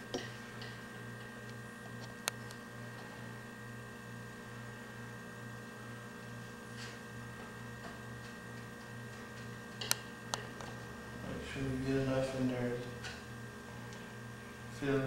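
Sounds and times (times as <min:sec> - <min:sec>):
pulsing electrical hum: 0:00.0 - 0:15.0.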